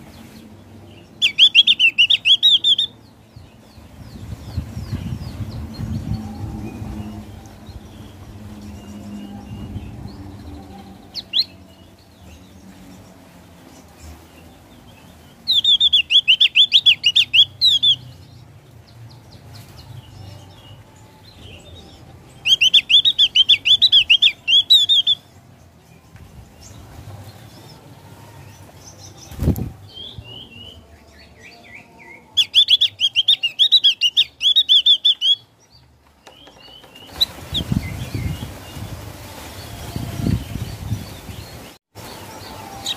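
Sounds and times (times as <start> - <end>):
bird chattering song: 1.1 - 3.0, 15.4 - 18.3, 22.4 - 25.3, 32.3 - 38.5.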